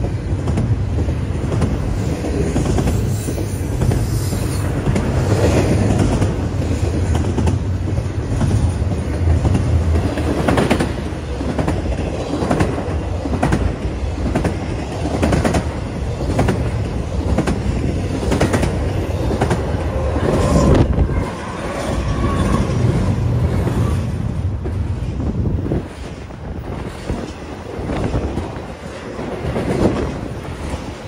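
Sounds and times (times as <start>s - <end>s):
train rumbling past: 0.0s - 31.0s.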